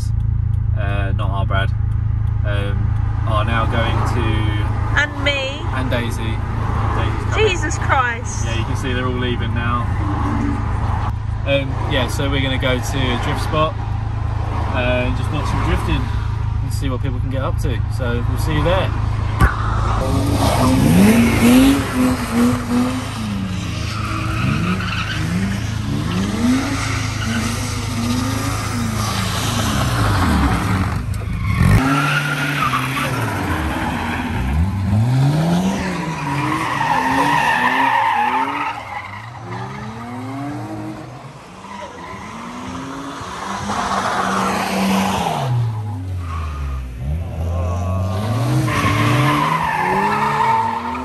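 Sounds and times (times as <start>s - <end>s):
car engines revving: 0.0s - 51.0s
tyres squealing: 19.9s - 51.0s.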